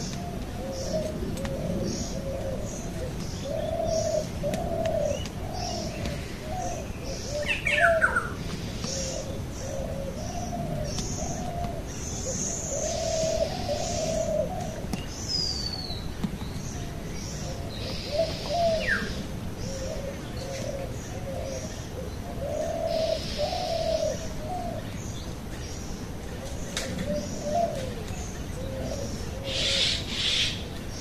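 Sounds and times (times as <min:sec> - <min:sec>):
bird low call: 0:26.3 - 0:30.8.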